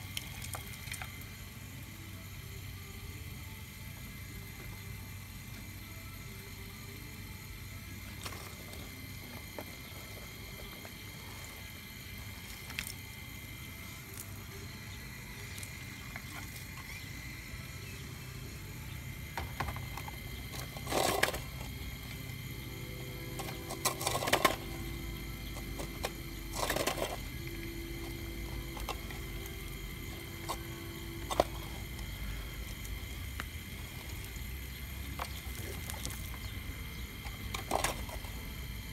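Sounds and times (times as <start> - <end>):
motor whine: 0.0 - 38.9
bucket scraping: 19.4 - 22.2, 23.3 - 32.8, 37.2 - 38.4.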